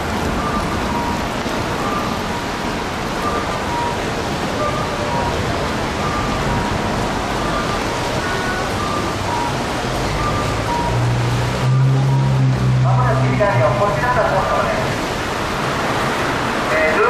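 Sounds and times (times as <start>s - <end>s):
steady rushing noise: 0.0s - 17.0s
two-note electronic beep: 8.8s - 13.9s.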